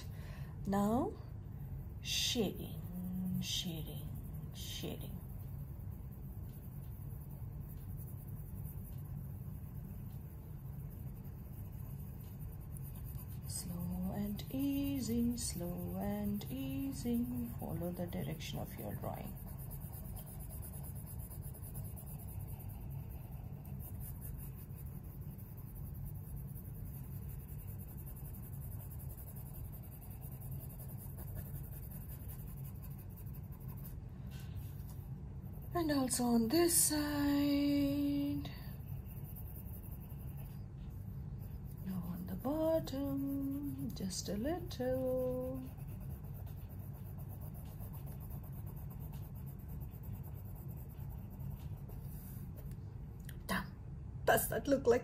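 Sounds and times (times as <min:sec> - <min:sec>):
steady low hum: 0:00.0 - 0:55.0
pencil scratching on paper: 0:02.0 - 0:52.7.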